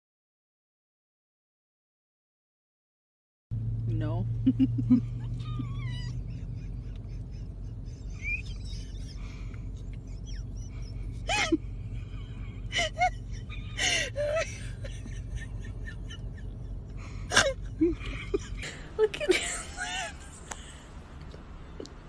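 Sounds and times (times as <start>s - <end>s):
low hum: 3.5s - 22.0s
puppy yapping: 5.2s - 6.4s.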